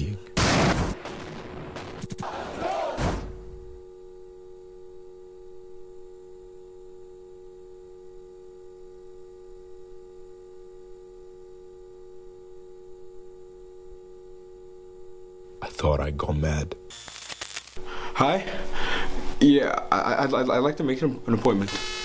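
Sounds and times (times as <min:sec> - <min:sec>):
faint high whine: 0:03.2 - 0:22.0.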